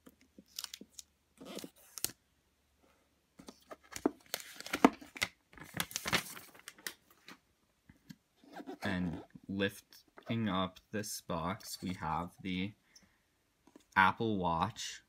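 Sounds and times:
paper crinkling and tearing: 0:05.6 - 0:07.0.

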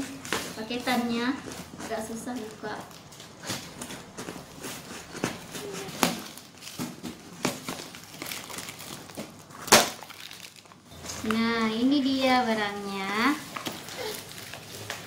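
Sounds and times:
cardboard tearing: 0:03.2 - 0:11.4, 0:13.4 - 0:15.0.

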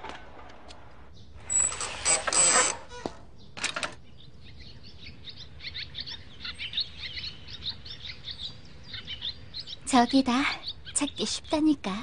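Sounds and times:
small birds chirping: 0:01.1 - 0:01.7, 0:03.3 - 0:12.0.

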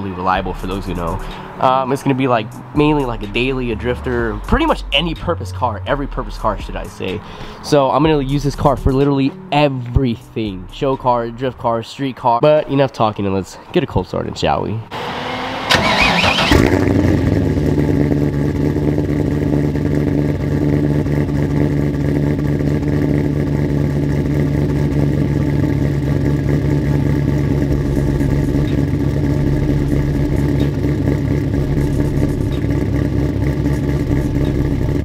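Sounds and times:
v eight engine revving and idling: 0:00.0 - 0:11.5, 0:14.9 - 0:35.0
engine cranking: 0:15.6 - 0:17.6, 0:24.1 - 0:35.0.

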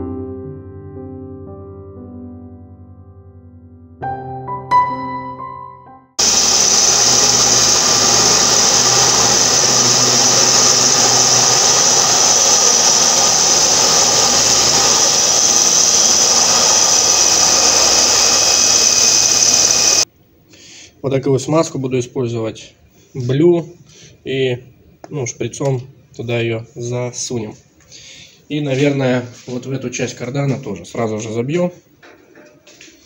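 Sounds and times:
power tool whining on metal: 0:06.2 - 0:20.1.

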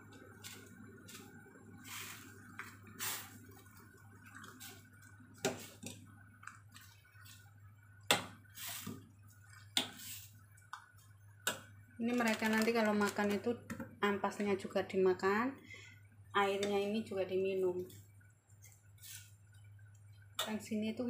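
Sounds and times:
broth sloshing in a pot: 0:00.2 - 0:07.7, 0:08.3 - 0:11.8.

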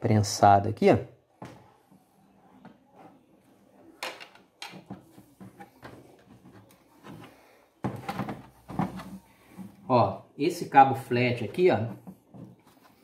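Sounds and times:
plastic parts clicking and knocking: 0:04.0 - 0:09.8.

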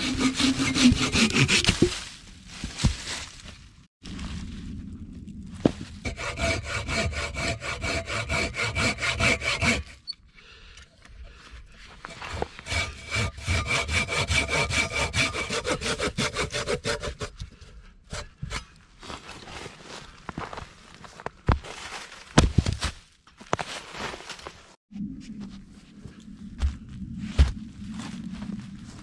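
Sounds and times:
hand saw cutting a log: 0:00.0 - 0:01.9, 0:06.0 - 0:10.0, 0:12.1 - 0:17.4.

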